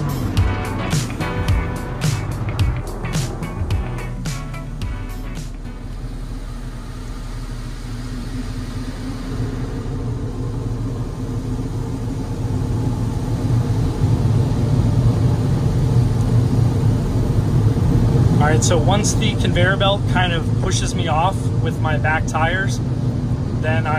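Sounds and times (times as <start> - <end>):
car wash machinery rumble: 0.0 - 23.9.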